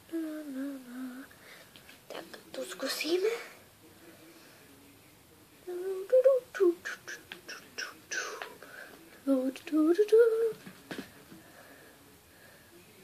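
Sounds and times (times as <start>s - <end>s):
girl singing wordless notes: 0.0s - 1.4s, 5.6s - 8.5s, 9.2s - 10.7s.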